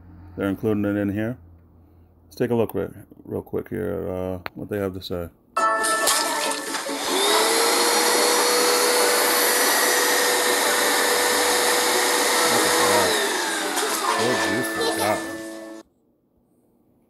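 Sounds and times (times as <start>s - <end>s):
carpet cleaner motor whine: 6.2s - 15.8s.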